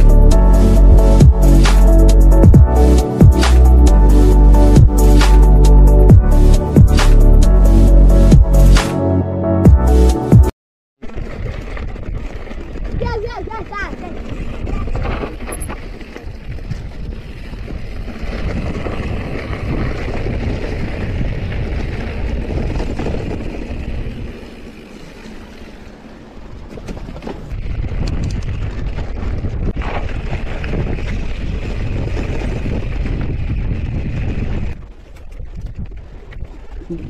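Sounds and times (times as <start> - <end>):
bike knocking and rattling: 11.0 - 36.0
wind rushing over microphone: 11.1 - 25.7, 26.4 - 37.0.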